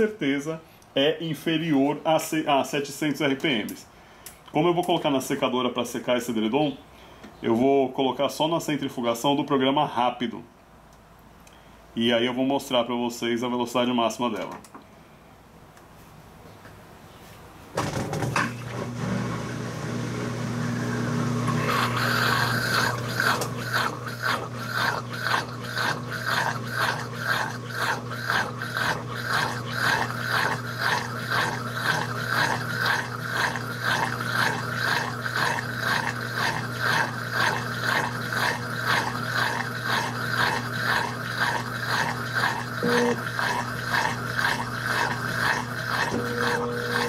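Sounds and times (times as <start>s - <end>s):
washing machine hum: 17.7s - 47.0s.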